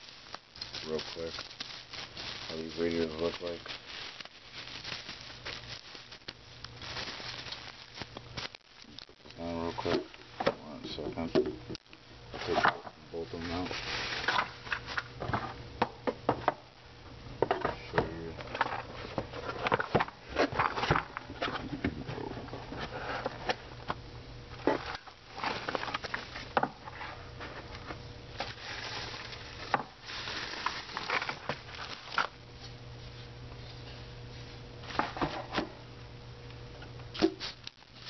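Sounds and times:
packaging rustling and crinkling: 0.0 - 10.1, 12.4 - 15.6, 18.5 - 23.7, 24.6 - 33.3, 37.4 - 38.0
steady low hum: 0.0 - 38.0.

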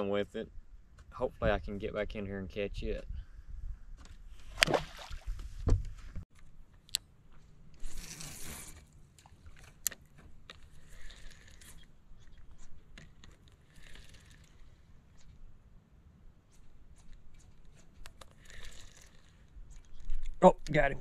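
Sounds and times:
fishing reel clicks and knocks: 9.6 - 14.8, 18.0 - 20.0.

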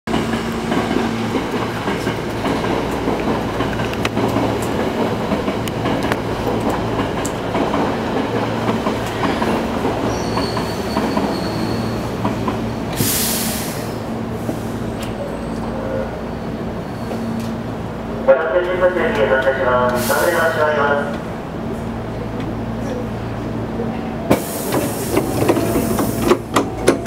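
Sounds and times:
rail clicks: 0.1 - 15.7, 17.1 - 27.0
electric train rumbling: 0.1 - 27.0
hiss burst: 13.0 - 14.7, 24.3 - 26.0.

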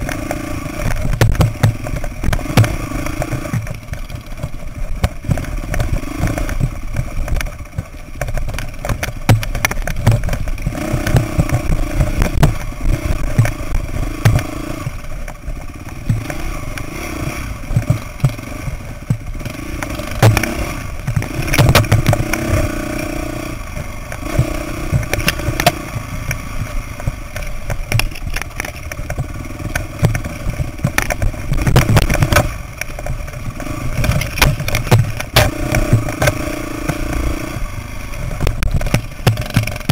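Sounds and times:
bike clattering over rocks: 0.0 - 16.8, 23.8 - 37.2, 38.4 - 39.9
dirt bike engine revving: 0.0 - 39.9.

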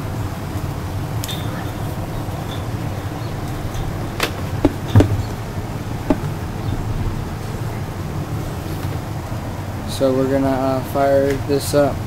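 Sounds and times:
electric fan humming: 0.0 - 12.0
knocks and clicks on metal fan: 3.7 - 6.9.

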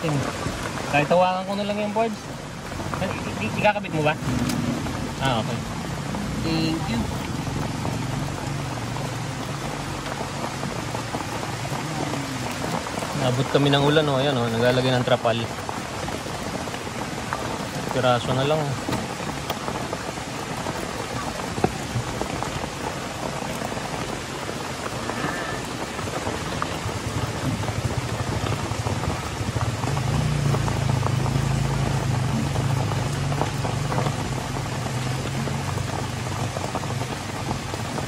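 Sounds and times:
heavy rain on metal roof: 0.0 - 38.0.

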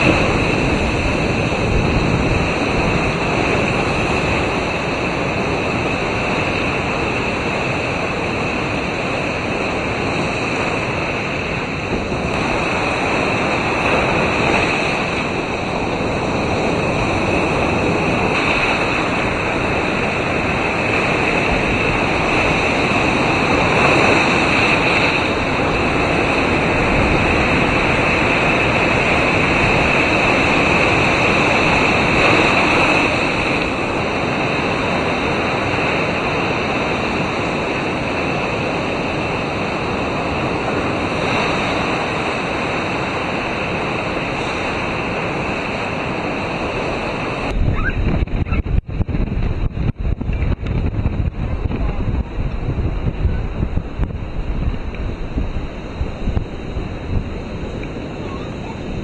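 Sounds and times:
storm waves breaking on beach: 0.0 - 59.0
wind buffeting microphone: 0.0 - 59.0.

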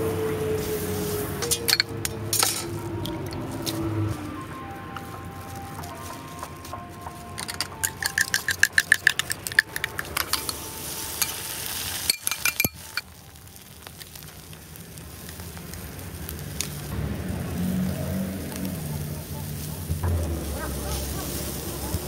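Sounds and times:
egg sizzling on griddle: 0.0 - 2.9, 7.2 - 22.0
fork whisking eggs in metal cup: 7.4 - 10.6.

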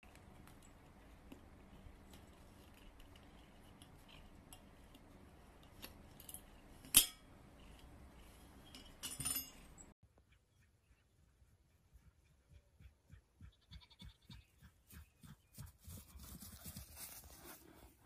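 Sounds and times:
small metal clicks and clinks: 8.6 - 9.9.

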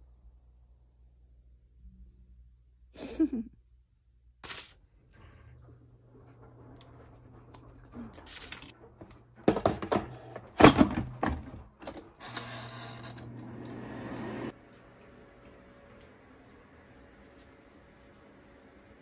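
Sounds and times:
air fryer fan whirring: 5.2 - 19.0.

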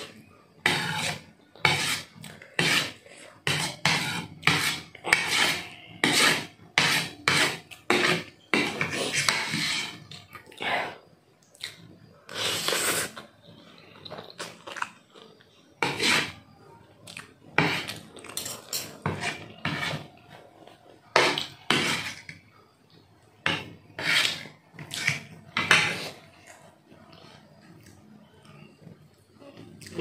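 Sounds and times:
noodles being slurped: 1.8 - 16.5
chewing: 11.4 - 15.8, 17.0 - 18.7
cutlery clinking on plate: 17.6 - 19.9.

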